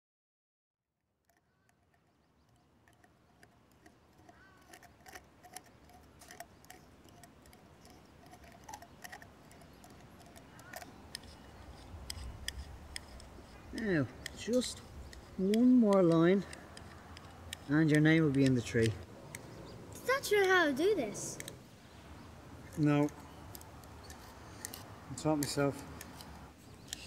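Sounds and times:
knife scraping tree bark: 1.3 - 19.0.

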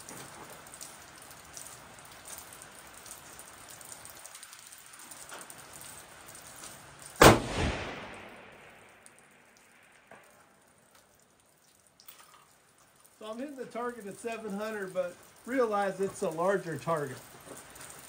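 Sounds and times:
rifle shot: 7.2 - 9.2.

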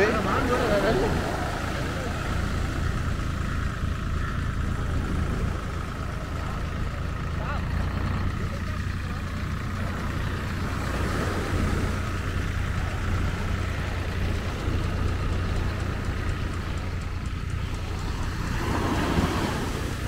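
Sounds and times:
wave washing in: 0.0 - 3.9, 8.9 - 20.0
surf rumbling: 0.0 - 20.0.

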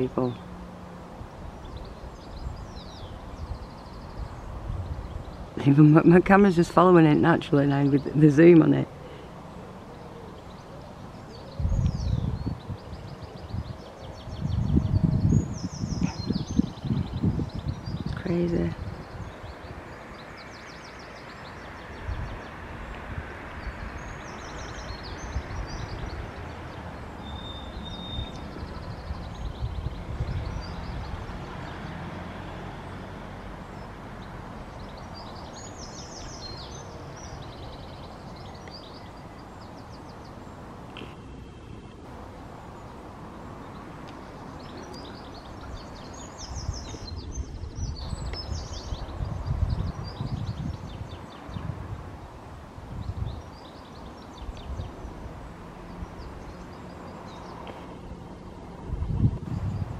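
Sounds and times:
outdoor background noise: 0.0 - 59.9
small birds trilling: 0.0 - 59.9.

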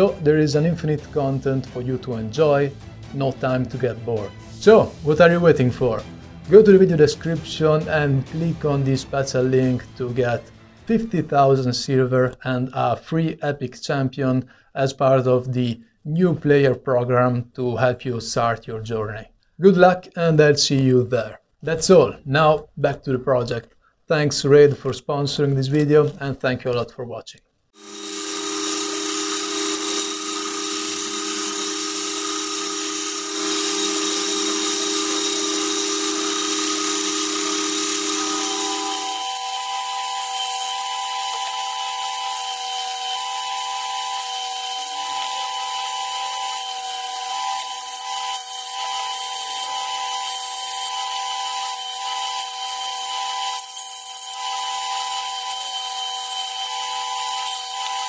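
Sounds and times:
power tool whining: 27.8 - 58.0.

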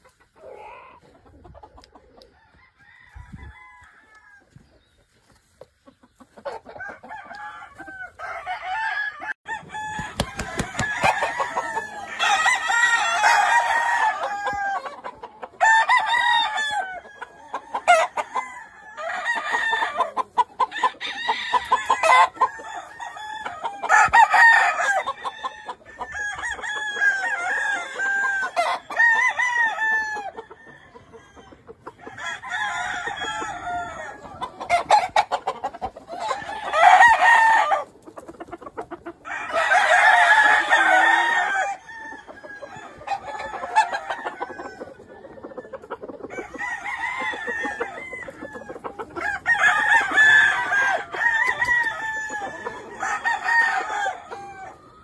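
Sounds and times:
roosters crowing: 0.0 - 1.2, 2.0 - 4.7, 6.4 - 55.0
chickens clucking: 0.0 - 55.0.

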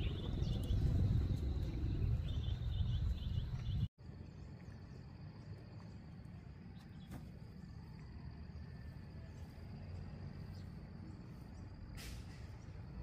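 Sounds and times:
wind and water rumble: 0.0 - 3.9.

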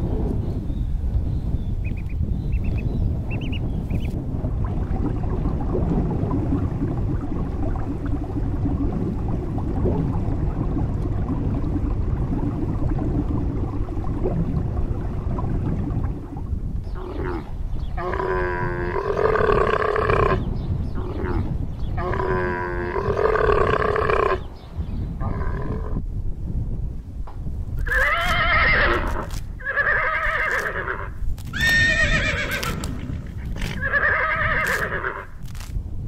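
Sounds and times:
low rumble: 0.0 - 23.0
horse neighing: 17.0 - 20.4, 27.8 - 35.4
camels calling: 27.9 - 35.6.

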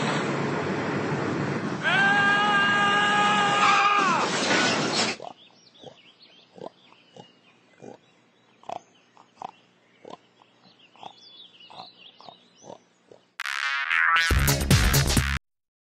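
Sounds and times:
pig grunting: 5.1 - 13.3.

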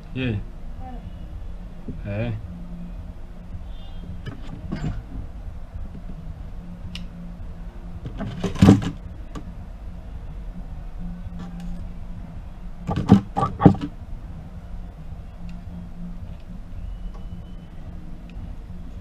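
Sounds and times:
low hum: 0.0 - 19.0
sharp knocks: 8.0 - 9.5, 12.9 - 14.0.

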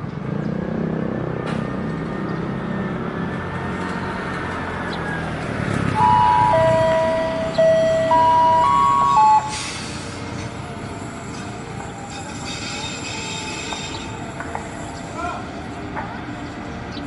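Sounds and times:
locomotive rumble: 3.1 - 17.0
locomotive horn: 6.0 - 9.6.

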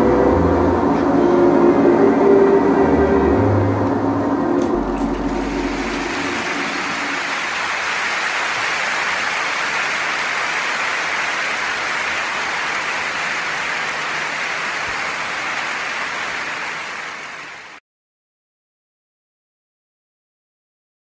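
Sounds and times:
audience applause: 4.6 - 17.8.

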